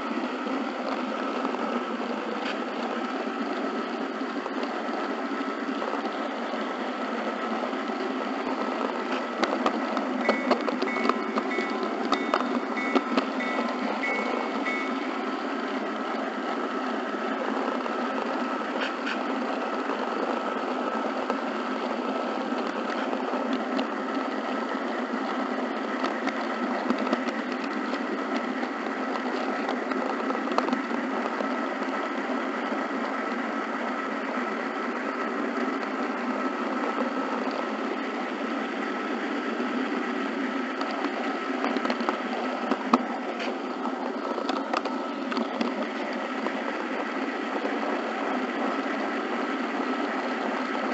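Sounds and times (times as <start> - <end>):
faint steady whine: 0.0 - 50.9
model train whirring: 0.0 - 50.9.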